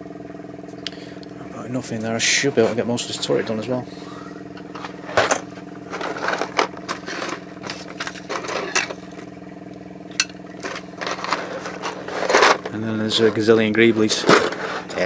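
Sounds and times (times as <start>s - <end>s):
electric motor humming: 0.0s - 15.0s
small handling noises: 4.5s - 9.3s, 10.2s - 15.0s.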